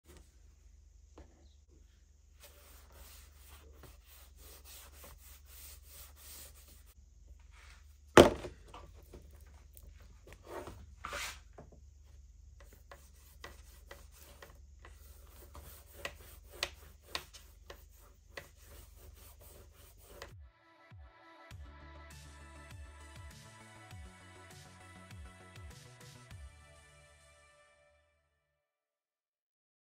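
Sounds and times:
fingers brushing leather: 12.6 - 20.3.

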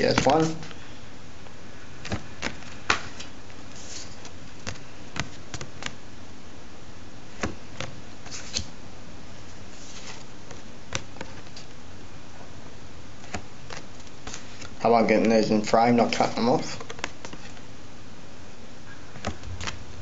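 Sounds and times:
cards clicking and tapping: 0.0 - 0.8, 2.0 - 6.0, 7.4 - 8.7, 10.0 - 11.7, 13.2 - 15.3, 16.8 - 17.6, 19.2 - 19.8
steady background hiss: 0.0 - 20.0
card sliding over card: 2.0 - 5.9, 7.4 - 8.7.

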